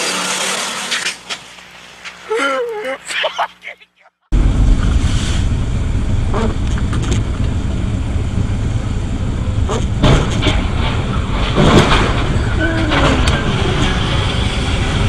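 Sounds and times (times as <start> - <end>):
car engine and tyres rumbling: 4.3 - 15.0.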